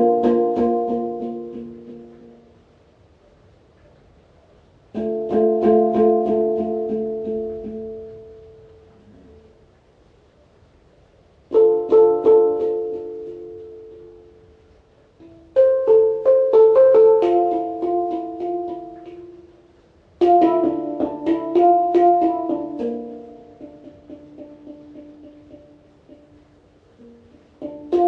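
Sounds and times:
instrumental music of ringing notes: 0.0 - 2.6, 5.0 - 9.6, 11.5 - 26.4.

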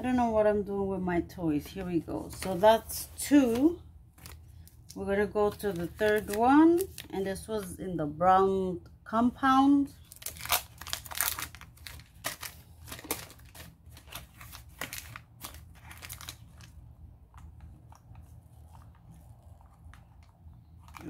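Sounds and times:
plastic packaging crinkling: 4.1 - 7.2, 10.0 - 21.0.

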